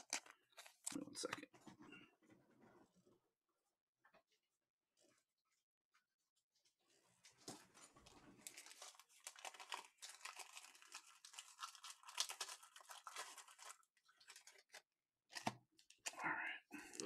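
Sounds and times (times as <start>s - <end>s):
plastic packaging crinkling: 0.0s - 1.0s, 7.8s - 16.2s.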